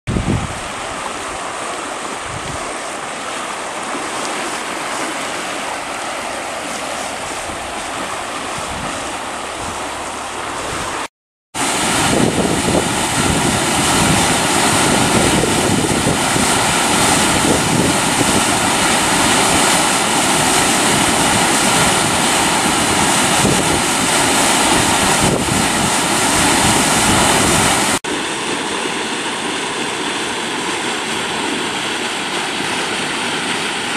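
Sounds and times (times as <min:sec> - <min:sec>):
floodwater rushing: 0:00.1 - 0:33.9.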